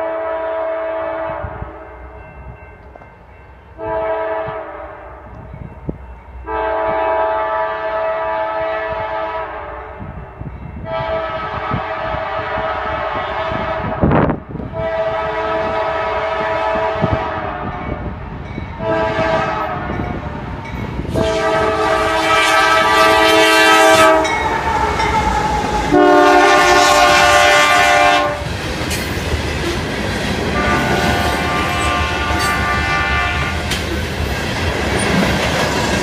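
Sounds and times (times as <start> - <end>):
locomotive horn blasts: 0.0 - 2.0, 3.8 - 5.4, 6.5 - 10.1, 10.8 - 18.0, 18.8 - 20.2, 21.1 - 28.5, 30.5 - 33.7
train rumble and wheel clatter: 0.0 - 36.0.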